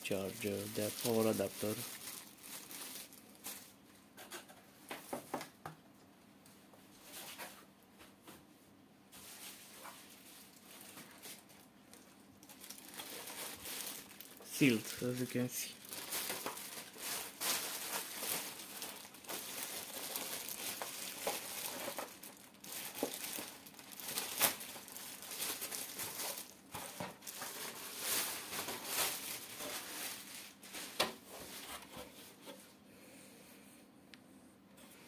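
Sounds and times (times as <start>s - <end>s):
plastic wrapping crinkling: 0.0s - 3.9s, 9.1s - 32.5s.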